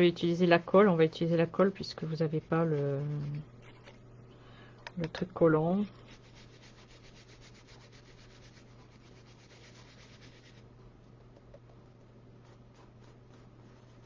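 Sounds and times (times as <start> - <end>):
brush scratching on paper: 1.4 - 4.0, 5.8 - 10.7, 12.4 - 14.0.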